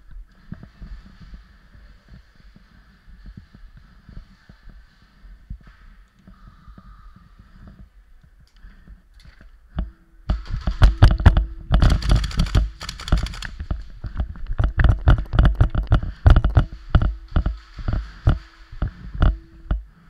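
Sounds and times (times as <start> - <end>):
camera rattling on mount: 10.6 - 13.8.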